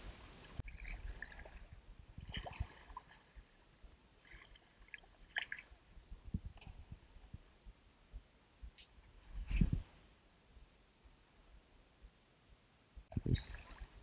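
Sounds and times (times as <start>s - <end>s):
paddle splashing in water: 0.6s - 3.4s.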